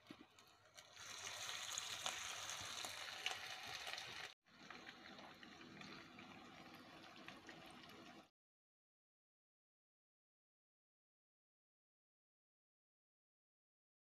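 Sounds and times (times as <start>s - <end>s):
patties sizzling in a frying pan: 0.2s - 8.3s.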